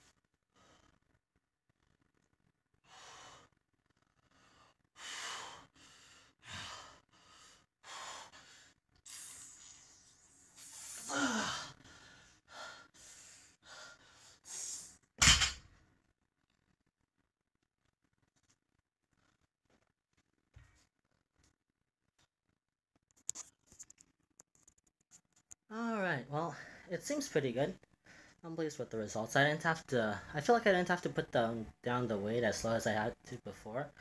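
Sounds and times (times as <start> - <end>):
man breathing hard: 4.3 - 8.8
barbell thumping on mat: 15.2 - 15.6.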